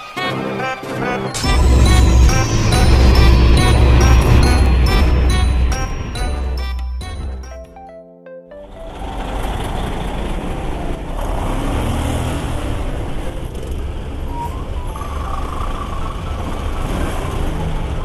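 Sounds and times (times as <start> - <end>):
heavy road traffic rumble: 8.7 - 18.0.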